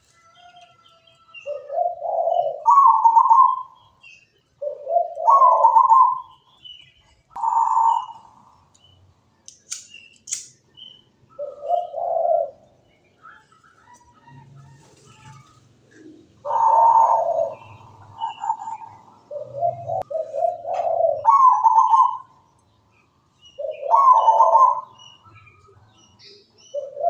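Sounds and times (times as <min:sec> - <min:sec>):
dove cooing: 0:01.3 - 0:06.4, 0:07.4 - 0:08.6, 0:11.3 - 0:12.7, 0:13.4 - 0:22.4, 0:23.5 - 0:25.2, 0:26.2 - 0:27.0.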